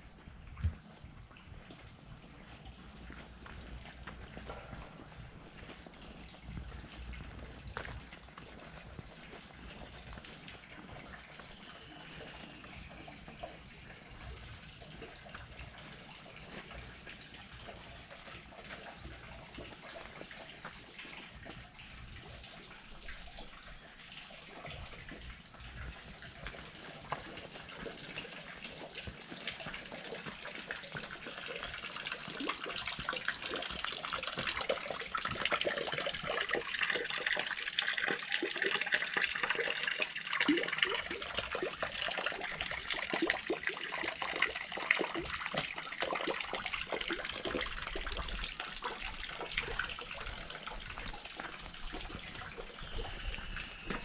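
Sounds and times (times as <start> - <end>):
spring water splashing from spout: 14.7 - 54.0.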